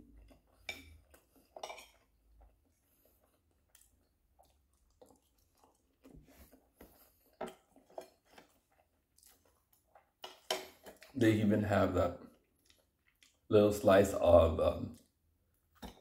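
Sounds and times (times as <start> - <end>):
person chewing: 0.0 - 11.2, 12.2 - 13.5.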